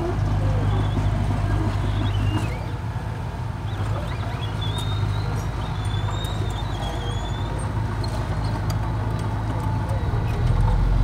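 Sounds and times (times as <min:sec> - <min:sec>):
dozer diesel engine running: 0:00.0 - 0:11.0
wavering high whistle: 0:03.9 - 0:07.6.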